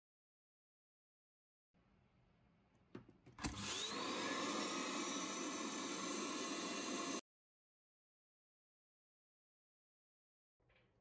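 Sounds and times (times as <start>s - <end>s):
vacuum motor rushing: 3.4s - 7.2s.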